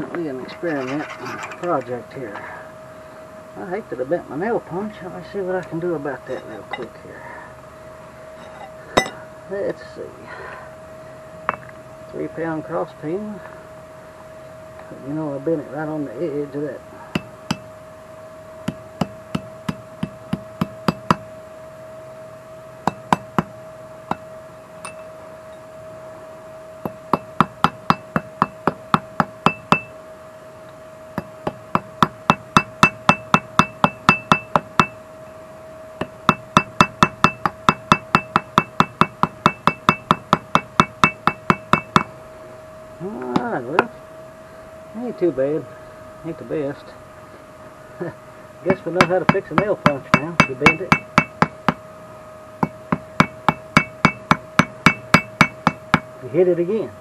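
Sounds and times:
faint steady hum: 0:00.0 - 0:57.0
hammer striking metal with ring: 0:08.4 - 0:09.2, 0:22.8 - 0:23.5, 0:26.8 - 0:29.9, 0:31.2 - 0:35.0, 0:36.0 - 0:42.1, 0:48.7 - 0:51.8, 0:52.6 - 0:56.1.

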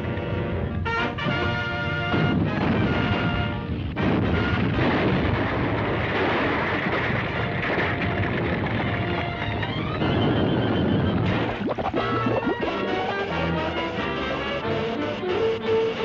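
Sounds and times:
orchestral brass music: 0:00.2 - 0:04.8, 0:11.2 - 0:16.0
earthquake rumble and crashing: 0:03.8 - 0:12.4.

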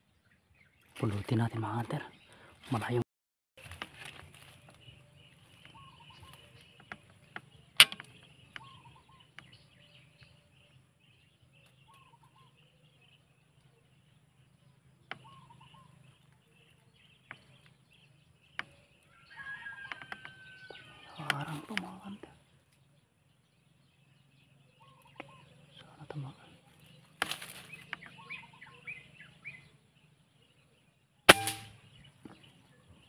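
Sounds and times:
faint bird calls: 0:03.6 - 0:33.0
sharp clicks: 0:06.8 - 0:08.7.

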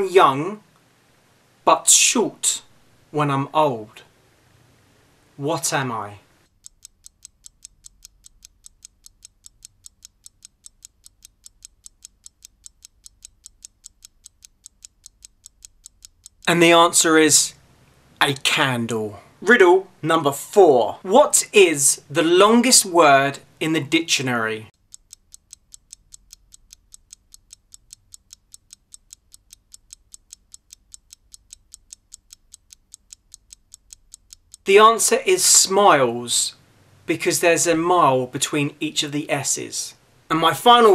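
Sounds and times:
fast clock-like ticking: 0:06.4 - 0:16.6, 0:24.7 - 0:34.7.

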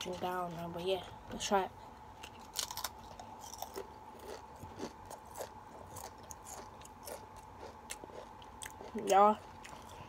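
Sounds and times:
person chewing crisps: 0:02.1 - 0:10.0.

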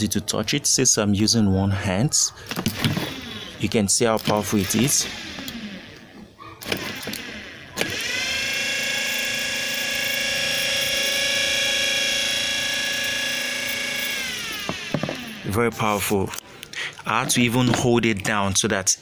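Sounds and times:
electric motor whine: 0:02.6 - 0:03.7, 0:04.4 - 0:16.2.

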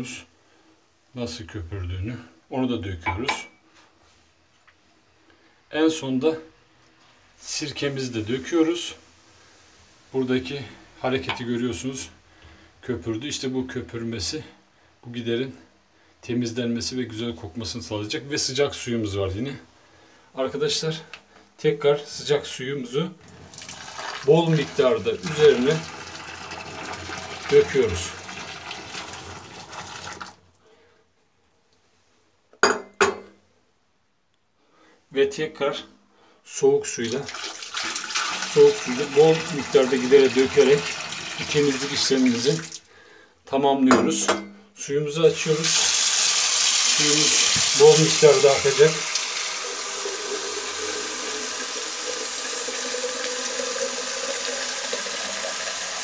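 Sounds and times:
water running into drain: 0:23.2 - 0:30.4, 0:37.0 - 0:42.9, 0:45.4 - 0:56.0
water splashing onto tiles: 0:23.3 - 0:24.3.

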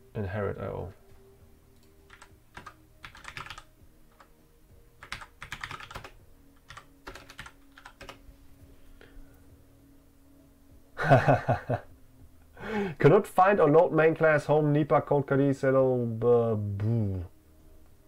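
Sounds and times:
computer keyboard typing: 0:01.8 - 0:04.3, 0:05.0 - 0:08.2.

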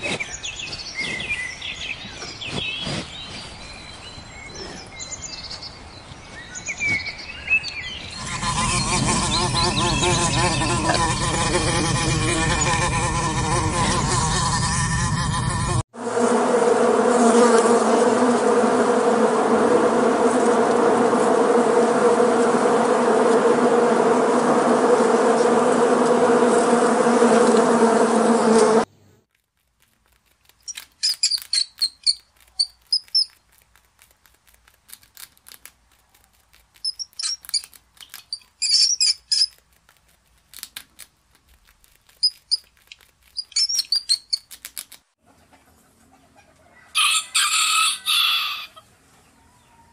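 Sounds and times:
honeybees buzzing: 0:08.1 - 0:28.9
rats squeaking: 0:08.2 - 0:15.2, 0:30.0 - 0:33.8, 0:34.9 - 0:45.0.

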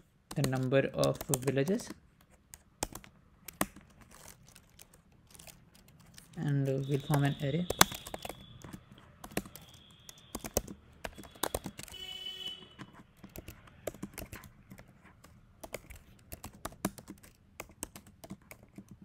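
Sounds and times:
typing on computer keyboard: 0:00.3 - 0:12.1, 0:12.7 - 0:19.0.

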